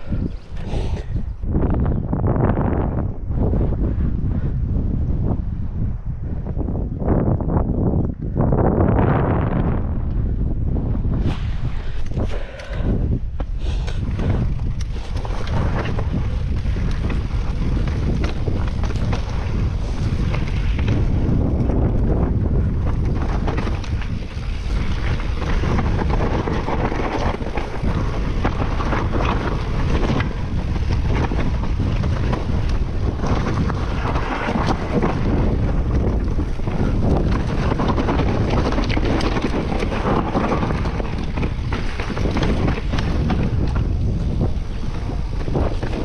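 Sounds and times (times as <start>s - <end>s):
wind on microphone: 0.0s - 46.0s
mountain bike rattling on trail: 10.2s - 46.0s.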